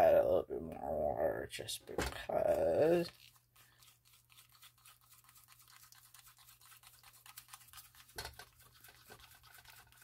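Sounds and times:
spoon scraping paste in cup: 2.5s - 10.0s.

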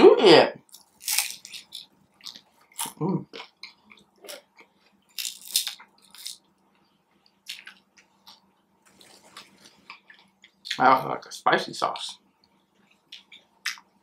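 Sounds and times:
crunching crisp food: 0.6s - 6.5s.

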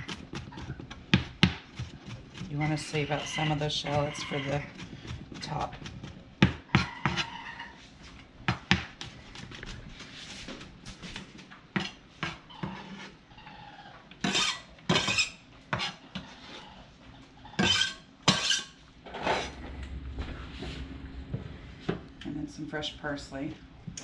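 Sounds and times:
knife chopping on plastic board: 0.0s - 2.5s, 3.7s - 7.3s, 8.5s - 9.2s.

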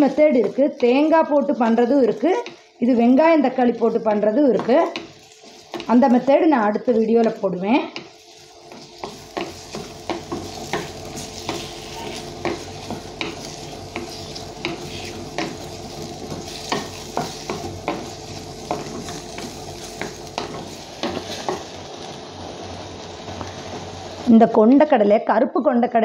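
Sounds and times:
vegetables sizzling in oil: 0.0s - 25.2s
wooden spatula scraping a pot: 3.8s - 22.2s.

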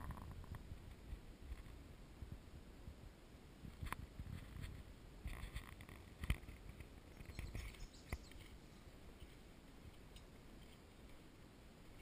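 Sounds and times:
wind rumble on microphone: 0.0s - 12.0s
faint bird chirps: 7.0s - 9.4s.

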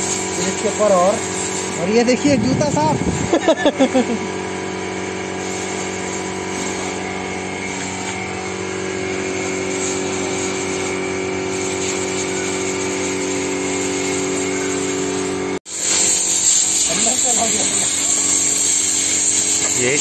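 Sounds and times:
machine motor humming: 0.1s - 15.6s.

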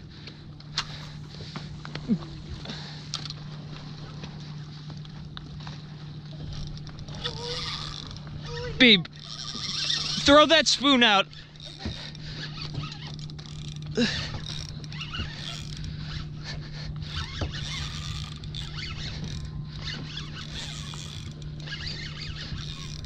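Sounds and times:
low hum: 0.0s - 23.0s
fishing reel creaking: 2.6s - 3.4s, 6.3s - 23.0s.

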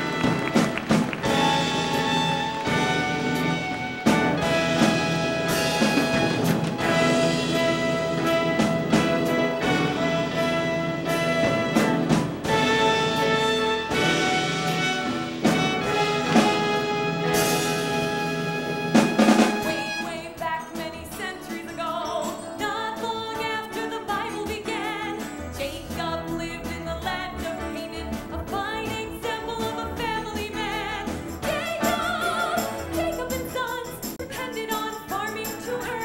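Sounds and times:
orchestra chords: 0.0s - 20.4s
woman singing: 19.6s - 36.0s.

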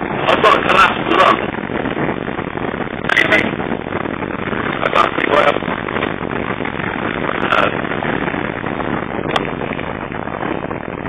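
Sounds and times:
wind rushing: 0.0s - 11.0s.

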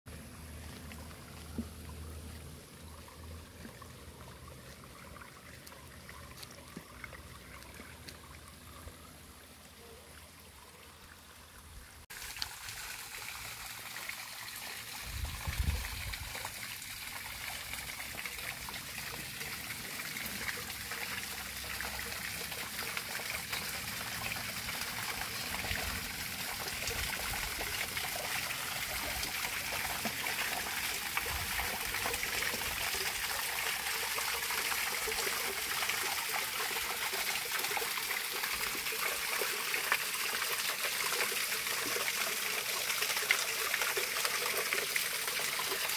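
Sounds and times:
water trickling over stones: 0.1s - 45.9s
waterfall splashing into pool: 12.1s - 45.9s.

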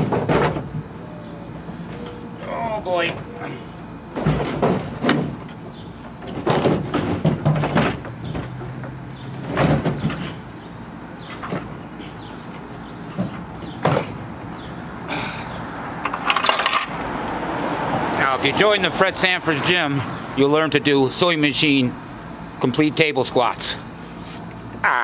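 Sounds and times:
wood knocking and scraping: 6.2s - 10.4s.

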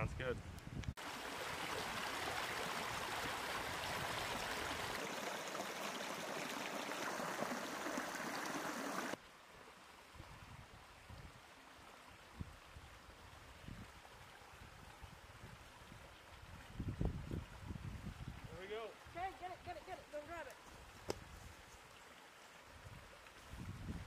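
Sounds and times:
stream rushing over stones: 1.0s - 9.2s
faint water trickle: 1.0s - 24.0s.

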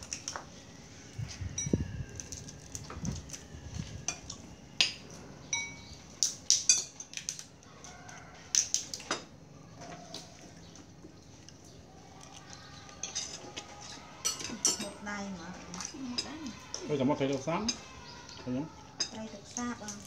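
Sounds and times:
spoons clinking on ceramic plates: 4.1s - 5.9s, 13.0s - 15.0s.

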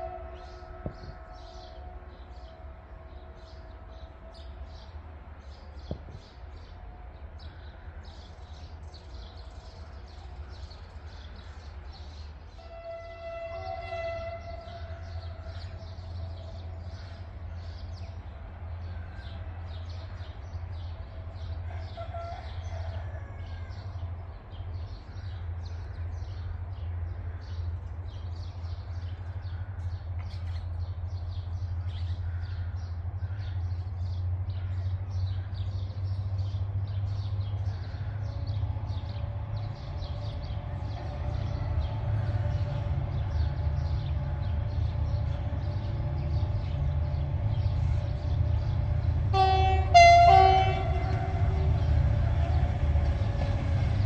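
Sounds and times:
locomotive horn blasts: 0.0s - 2.7s, 12.6s - 15.6s, 49.3s - 52.7s
locomotive engine rumble: 0.0s - 54.0s.

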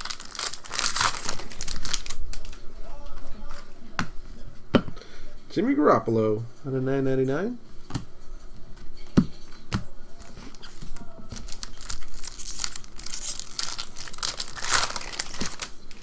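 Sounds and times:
wrapper tearing and crinkling: 0.0s - 2.6s, 11.4s - 16.0s.

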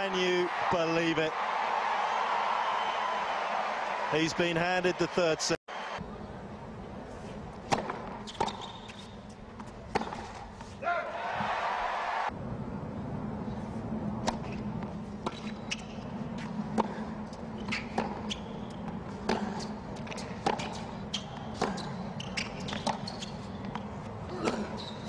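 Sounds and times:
tennis ball bounces: 7.7s - 10.5s, 14.2s - 25.0s.

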